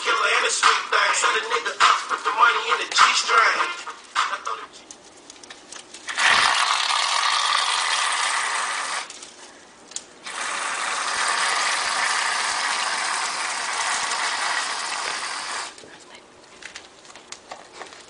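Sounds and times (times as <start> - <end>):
aerosol can spraying: 10.3 - 15.8.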